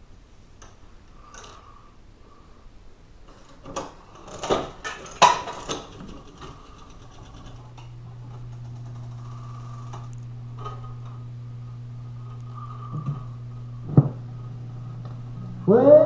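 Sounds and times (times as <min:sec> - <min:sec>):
low mechanical hum: 0:00.0 - 0:16.0
jukebox mechanism clicks and clunks: 0:03.3 - 0:09.2.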